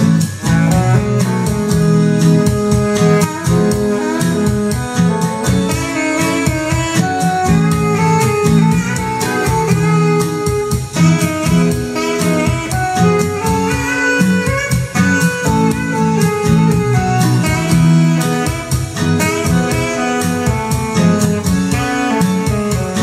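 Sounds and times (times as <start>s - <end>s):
pop song guitar: 0.0s - 23.0s
steady drum beat: 0.0s - 23.0s.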